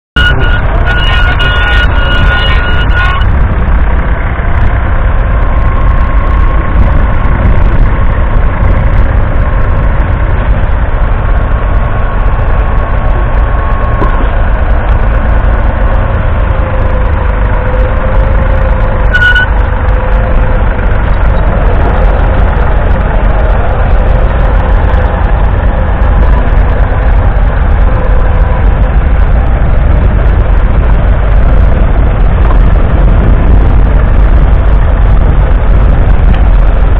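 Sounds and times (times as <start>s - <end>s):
diesel tractor engine under load: 0.1s - 36.9s
short high-pitched tone: 0.2s - 3.3s, 19.1s - 19.6s.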